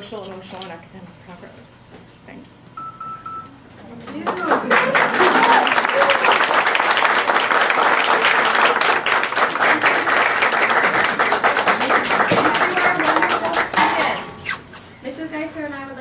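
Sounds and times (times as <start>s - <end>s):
audience applauding: 4.2s - 14.1s.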